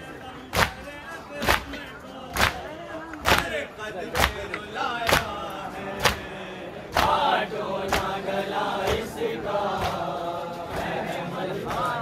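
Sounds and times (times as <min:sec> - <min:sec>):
group chanting in unison: 0:00.0 - 0:12.0.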